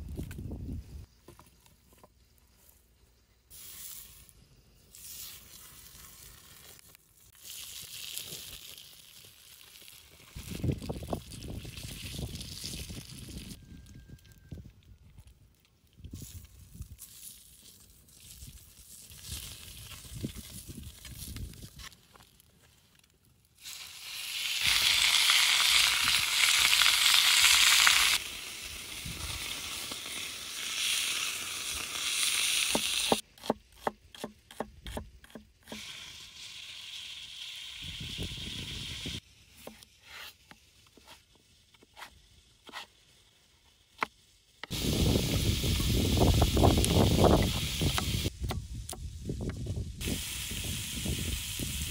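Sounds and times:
meat sizzling on griddle: 23.6 - 33.2, 35.7 - 39.2, 44.3 - 48.3, 50.0 - 51.9.

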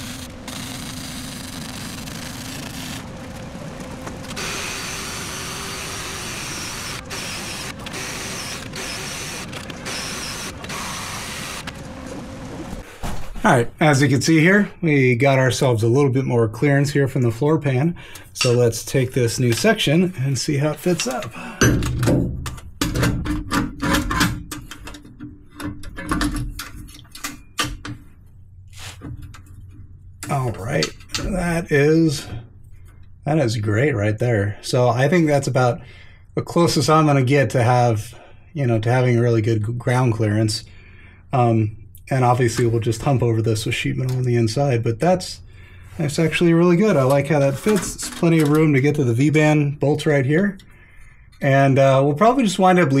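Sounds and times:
angle grinder whining: 0.0 - 12.8
welding arc crackling: 0.0 - 12.8
steady low hum: 0.0 - 12.9.

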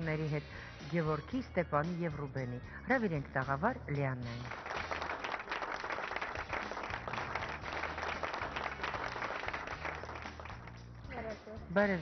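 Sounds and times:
low bass music track: 0.0 - 5.2, 6.4 - 12.0
audience applauding: 4.4 - 10.9.

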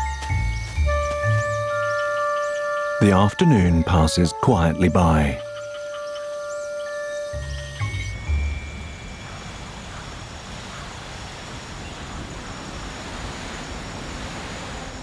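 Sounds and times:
background music: 0.0 - 8.8.

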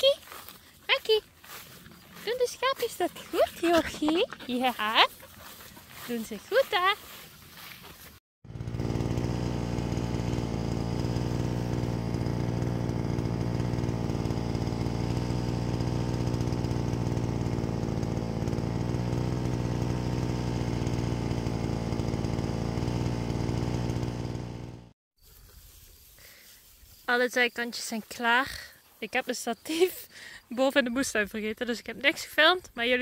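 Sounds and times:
brush cutter engine running: 0.0 - 25.0.

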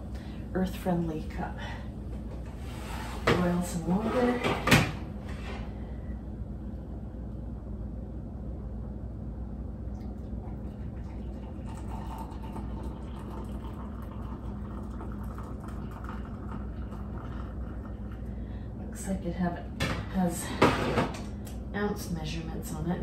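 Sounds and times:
constant low hum: 0.0 - 23.0
water pouring from kettle: 10.4 - 18.2.

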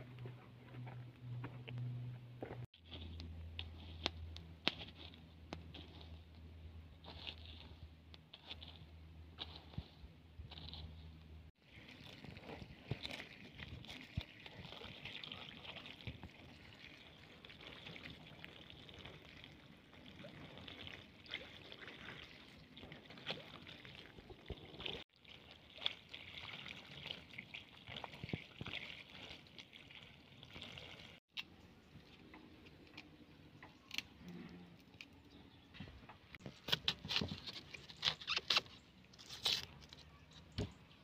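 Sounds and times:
hands rubbing onion in water: 2.7 - 31.3
water trickling onto grass: 11.7 - 31.2.

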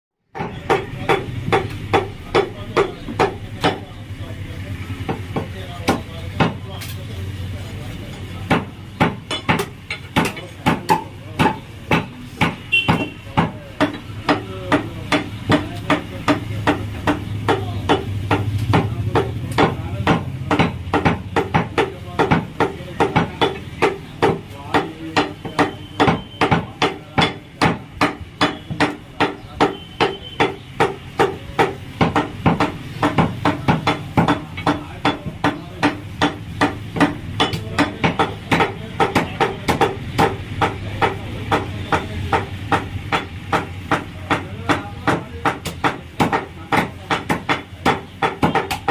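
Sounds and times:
knife chopping meat on wood: 0.3 - 4.0, 5.0 - 7.1, 7.8 - 48.9.

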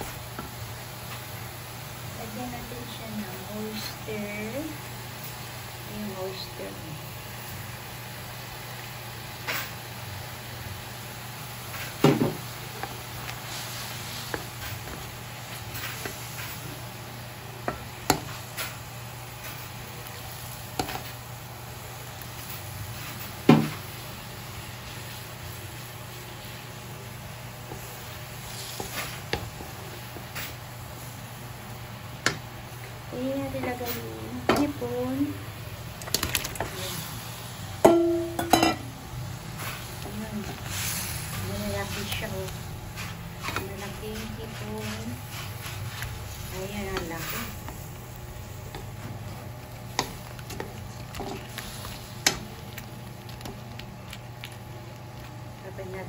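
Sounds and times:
garlic sizzling in butter: 0.0 - 56.0
wooden spatula scraping and knocking: 39.6 - 47.7.

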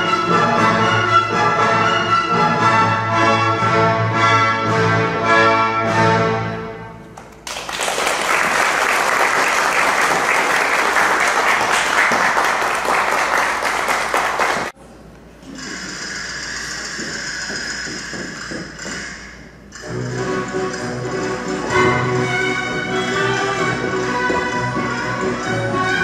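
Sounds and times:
small audience clapping: 7.2 - 14.8.

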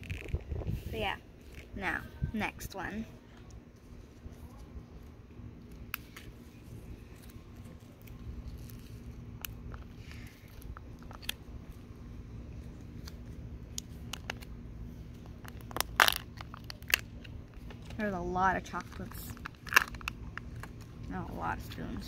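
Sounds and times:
low hum: 0.0 - 22.0
chocolate shell cracking: 15.2 - 17.9, 18.8 - 21.0
foil crinkling: 15.4 - 17.9, 18.6 - 21.1.

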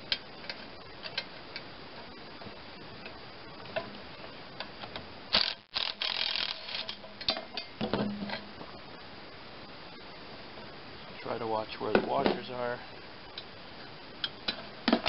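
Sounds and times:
power tool spinning nut: 5.3 - 7.0.

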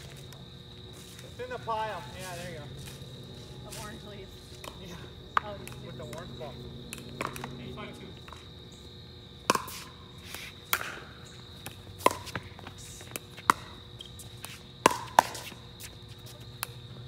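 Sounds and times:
ball bouncing on hard court: 6.9 - 8.4, 9.4 - 9.9, 10.7 - 15.6.

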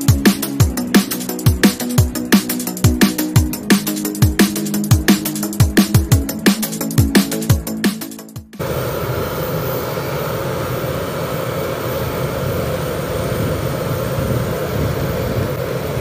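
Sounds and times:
music: 0.0 - 8.6
jet engines running: 0.0 - 16.0.

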